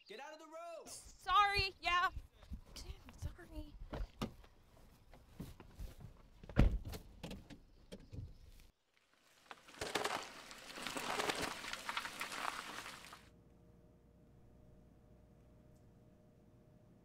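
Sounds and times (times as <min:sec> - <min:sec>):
car tyres rolling on asphalt: 0:09.1 - 0:13.3.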